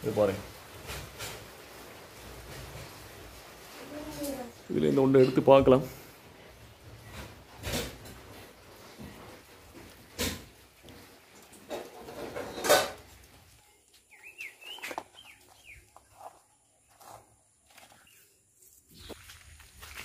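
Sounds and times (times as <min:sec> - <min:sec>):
rustling handling noise: 0:00.0 - 0:20.0
bird chirps: 0:14.0 - 0:16.4.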